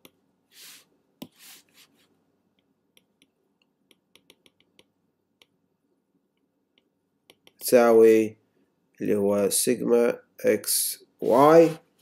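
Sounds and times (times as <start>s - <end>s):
stylus tapping on glass screen: 2.9s - 5.6s, 6.7s - 7.6s.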